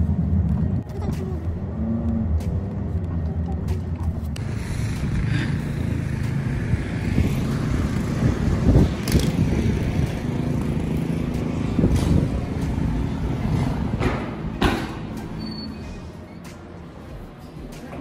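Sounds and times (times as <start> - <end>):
wind rumbling on microphone: 6.1 - 14.2.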